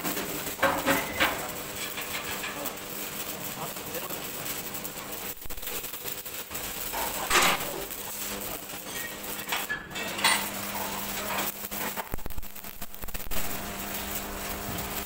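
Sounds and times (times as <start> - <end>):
loud metal clatters: 0.0 - 2.8, 6.6 - 8.0
metal clanks and scrapes: 0.0 - 2.8, 6.9 - 7.9, 8.7 - 12.1
steady hum: 0.1 - 15.0.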